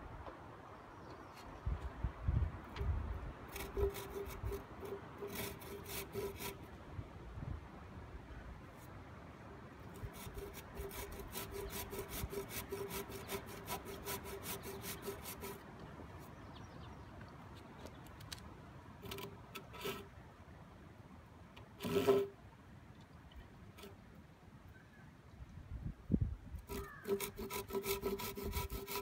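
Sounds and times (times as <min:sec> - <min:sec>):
hand saw cutting wood: 0:03.5 - 0:06.7, 0:09.9 - 0:15.6, 0:19.0 - 0:20.1, 0:21.8 - 0:22.4, 0:26.6 - 0:29.0.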